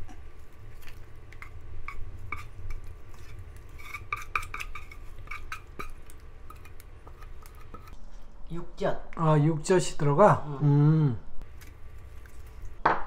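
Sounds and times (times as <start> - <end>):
utensil scraping metal saucepan: 0.7 - 8.0.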